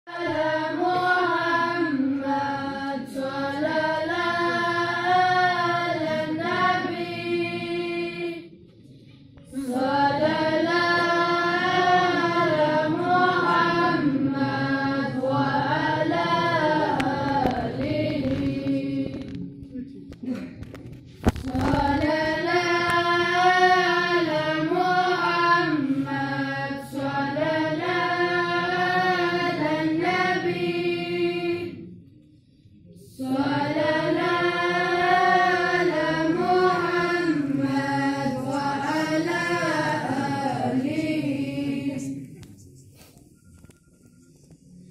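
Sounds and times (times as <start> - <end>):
men chanting into a microphone: 33.2 - 42.2.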